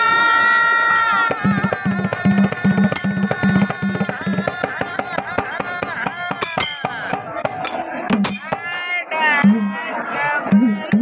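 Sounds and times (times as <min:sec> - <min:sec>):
dhol drums playing fast rhythm: 0:01.3 - 0:08.8, 0:09.4 - 0:09.9, 0:10.5 - 0:11.0.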